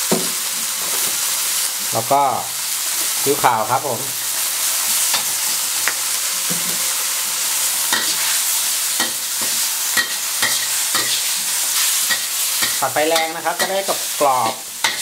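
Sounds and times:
greens sizzling in a wok: 0:00.0 - 0:15.0
metal spatula scraping a wok: 0:04.8 - 0:05.6, 0:07.8 - 0:15.0.

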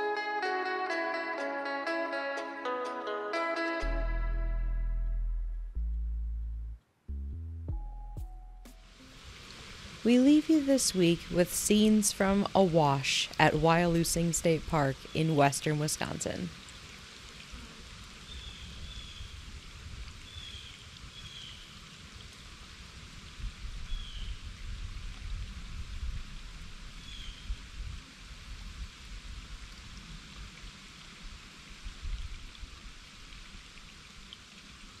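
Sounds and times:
creek trickling over rocks: 0:08.9 - 0:35.0
wind rumble on microphone: 0:18.3 - 0:21.6, 0:23.0 - 0:30.8, 0:31.8 - 0:33.0.

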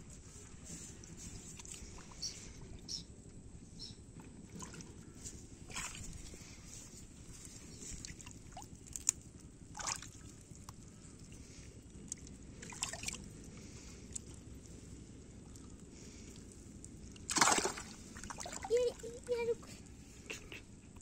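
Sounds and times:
shallow water sloshing: 0:04.2 - 0:19.8
water splashes: 0:05.6 - 0:06.6, 0:07.9 - 0:14.8, 0:15.5 - 0:19.4.

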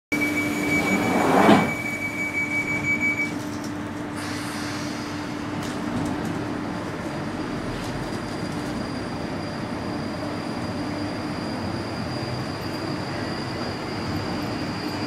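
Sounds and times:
underground train drone: 0:00.2 - 0:15.0.

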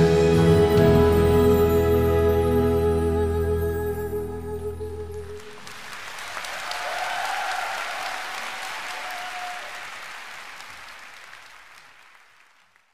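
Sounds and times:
audience applause: 0:05.4 - 0:12.9.

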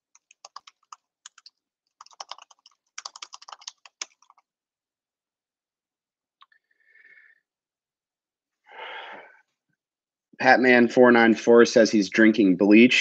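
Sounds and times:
typing on computer keyboard: 0:00.0 - 0:04.5.

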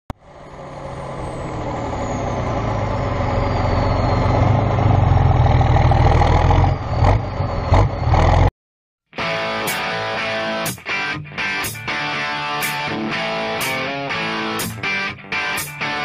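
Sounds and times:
heavy vehicle engine running: 0:00.1 - 0:08.5.

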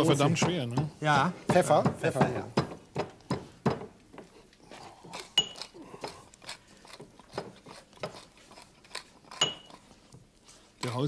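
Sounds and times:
pepper mill grinding: 0:05.1 - 0:10.1
sharp ringing clink: 0:05.4 - 0:05.6, 0:09.4 - 0:09.7.

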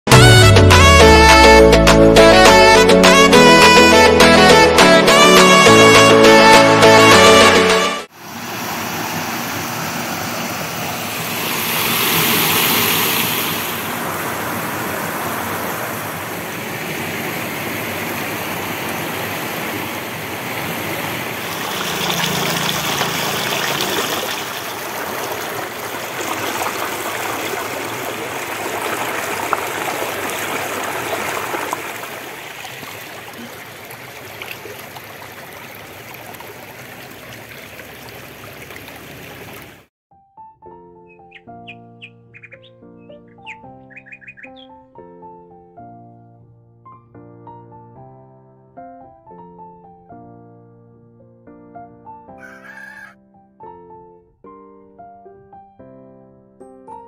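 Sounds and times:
stream running over rocks: 0:08.2 - 0:39.9.

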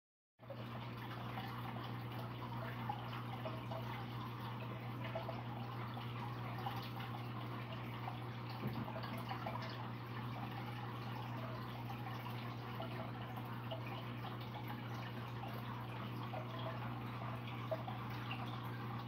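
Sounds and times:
aquarium water bubbling: 0:00.4 - 0:19.0
water drips: 0:00.4 - 0:19.0.

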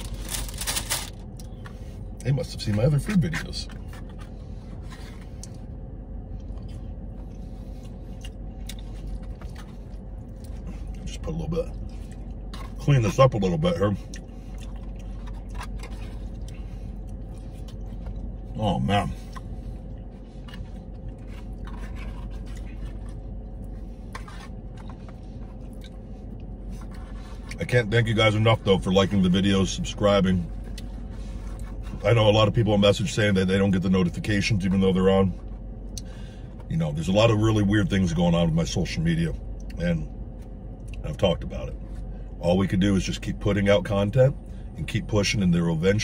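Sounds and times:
car cabin hum: 0:00.0 - 0:46.0
man chewing food: 0:03.7 - 0:12.9, 0:14.0 - 0:27.6, 0:30.4 - 0:32.0.

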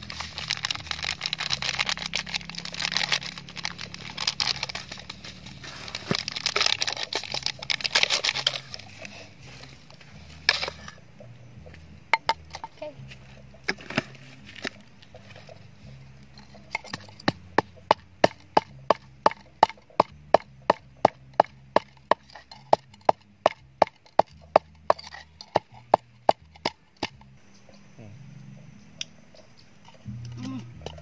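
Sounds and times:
pestle pounding in wooden mortar: 0:16.7 - 0:27.3.

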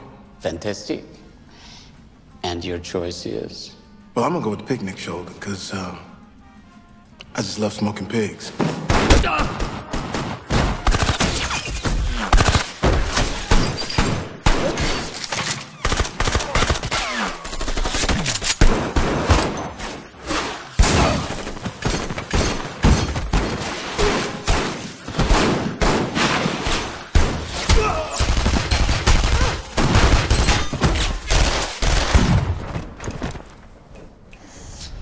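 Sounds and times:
guns firing rapidly: 0:08.9 - 0:15.2, 0:15.8 - 0:19.6, 0:20.8 - 0:32.4.

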